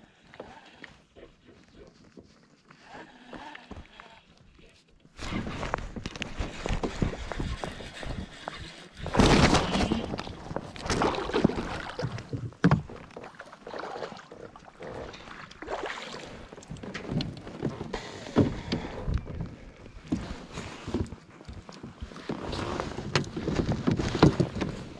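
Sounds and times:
water splashing and sloshing: 5.2s - 24.9s.

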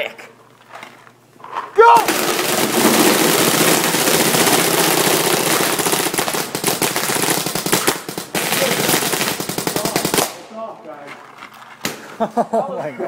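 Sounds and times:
paintball markers rapid firing: 2.0s - 10.5s.

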